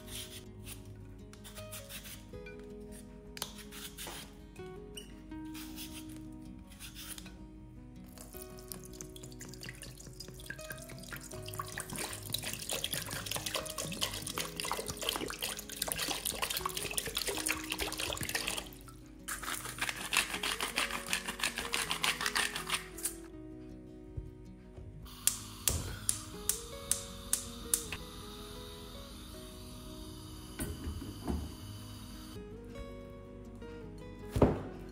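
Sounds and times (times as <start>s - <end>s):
salt sprinkled into water: 8.1s - 23.2s
water running into metal pot: 8.6s - 21.0s.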